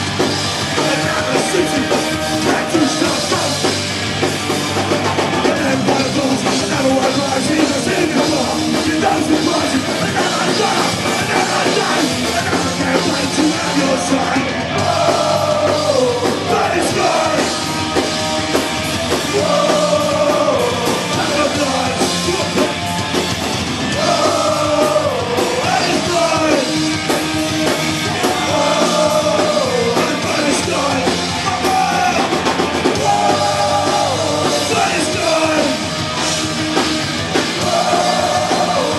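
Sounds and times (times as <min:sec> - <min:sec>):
punk rock band playing: 0:00.0 - 0:38.9
singer shouting vocals: 0:00.8 - 0:03.6, 0:05.4 - 0:17.6, 0:19.3 - 0:22.8, 0:23.9 - 0:26.8, 0:28.1 - 0:35.9.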